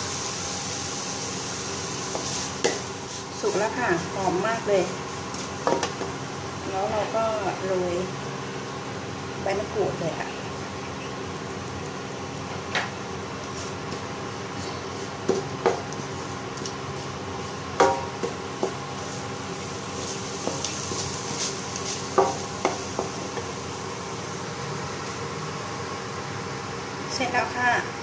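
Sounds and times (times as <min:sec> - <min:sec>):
steady hum: 0:00.0 - 0:28.0
spatula scraping food in a pan: 0:19.9 - 0:23.2.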